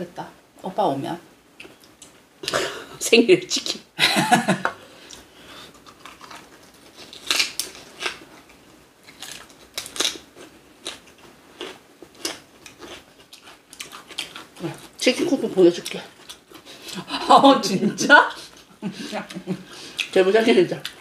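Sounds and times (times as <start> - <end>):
chewing: 5.1 - 14.9
sharp clicks and crunches: 5.9 - 10.2.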